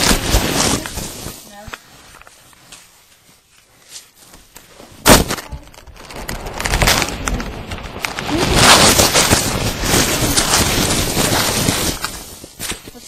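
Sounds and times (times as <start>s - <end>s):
foam rustling against microphone: 0.0s - 13.0s.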